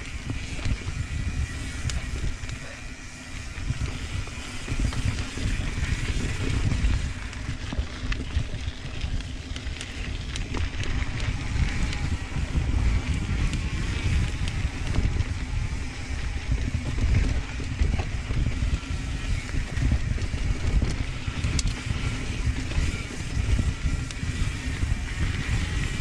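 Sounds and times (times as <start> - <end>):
bike clicking and rattling: 0.0 - 26.0
bike tyres rumbling over ground: 0.0 - 26.0
wind buffeting microphone: 0.0 - 26.0.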